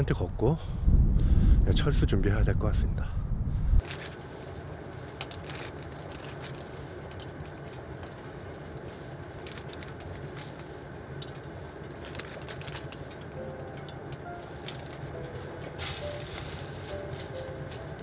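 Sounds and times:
plastic bag crinkling: 0:03.8 - 0:18.0.

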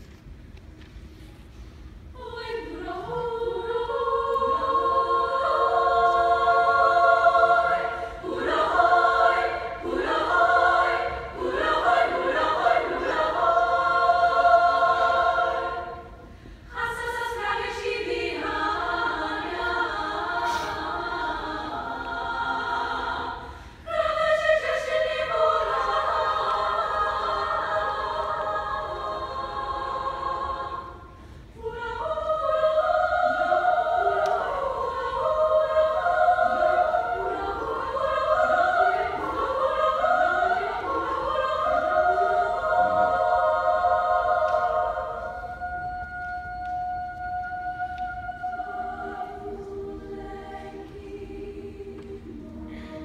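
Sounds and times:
women singing in harmony: 0:02.1 - 0:53.0
singers breathing: 0:16.2 - 0:16.8, 0:23.4 - 0:23.9, 0:52.5 - 0:53.0.

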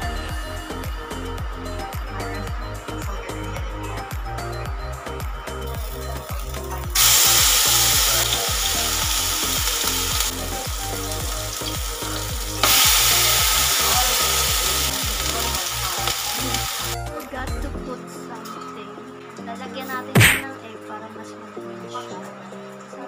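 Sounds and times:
background music with steady beat: 0:00.0 - 0:23.0
frying pan sizzling: 0:05.8 - 0:17.0.

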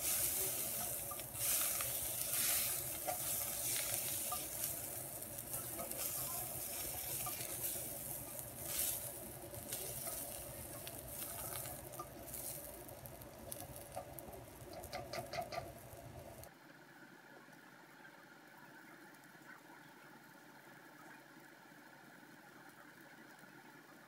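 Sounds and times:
spatula scraping a wok: 0:00.0 - 0:12.8
vegetables sizzling in oil: 0:00.0 - 0:16.5
spatula clicking against pan: 0:13.5 - 0:15.7.

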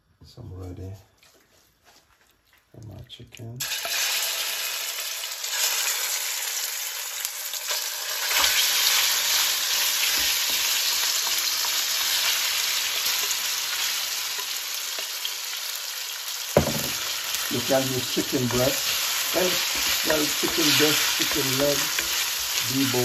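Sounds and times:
chicken sizzling in a pan: 0:03.6 - 0:23.0
soft knocks: 0:16.6 - 0:17.0.

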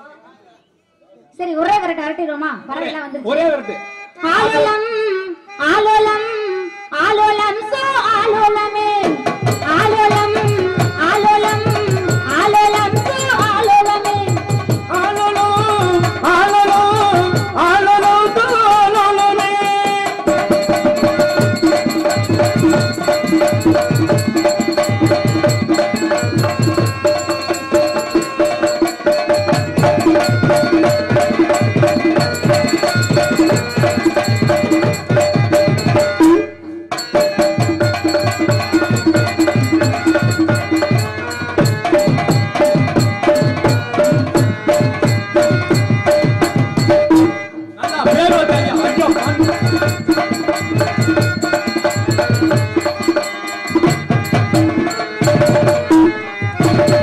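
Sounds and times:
hand drums rhythm: 0:09.0 - 0:57.0
sustained folk melody: 0:20.2 - 0:57.0.

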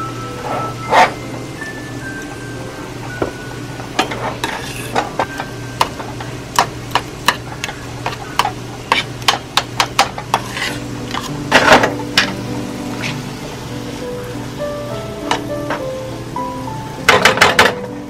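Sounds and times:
metal spoon scraping saucepan: 0:04.0 - 0:05.1, 0:10.3 - 0:11.4.

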